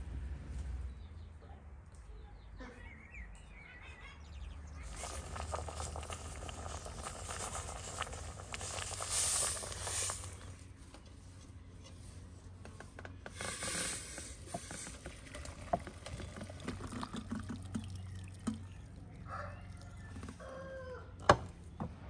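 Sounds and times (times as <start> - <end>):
liquid trickling and splashing: 4.8 - 10.6, 13.4 - 19.1.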